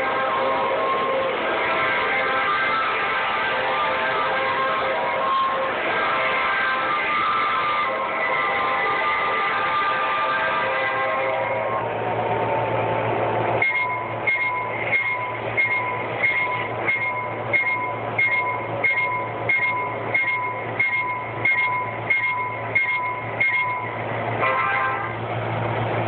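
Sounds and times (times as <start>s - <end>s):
crossing signal bell ringing: 13.6s - 25.2s.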